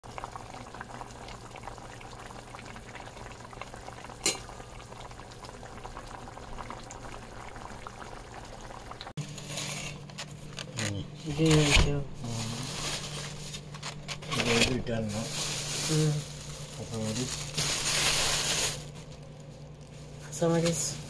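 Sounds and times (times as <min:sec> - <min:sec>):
curry bubbling in a pot: 0:00.0 - 0:09.2.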